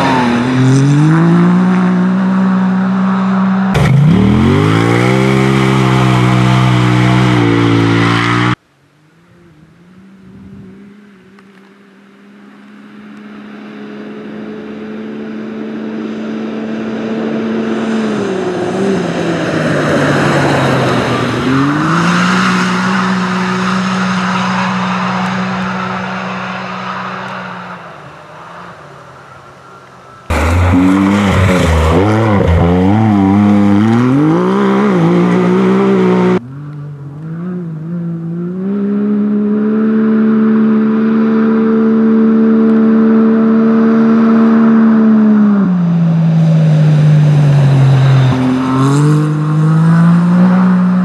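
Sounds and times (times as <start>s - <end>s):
utility vehicle engine revving: 0.0s - 51.0s.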